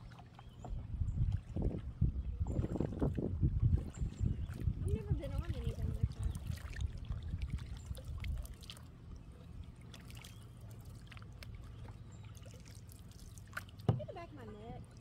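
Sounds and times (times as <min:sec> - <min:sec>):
low steady hum: 0:00.0 - 0:15.0
water trickling: 0:00.0 - 0:15.0
small water drips and taps: 0:02.4 - 0:09.2, 0:09.8 - 0:15.0.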